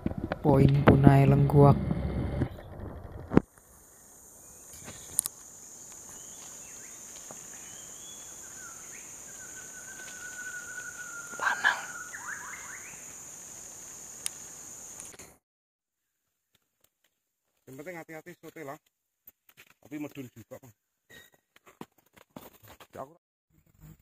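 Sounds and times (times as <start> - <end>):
forest insects droning: 2.8 - 15.4.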